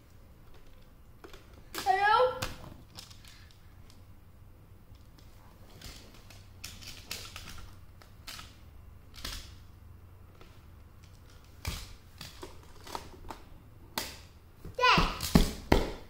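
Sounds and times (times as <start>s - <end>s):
toy pieces clacking together: 5.0s - 9.6s.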